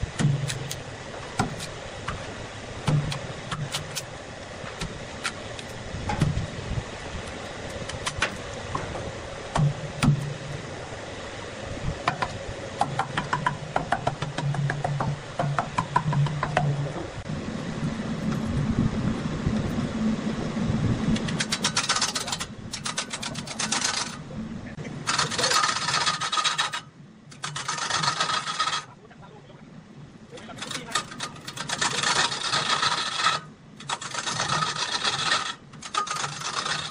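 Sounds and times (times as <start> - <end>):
angle grinder cutting wood: 25.0 - 28.9, 30.4 - 36.9.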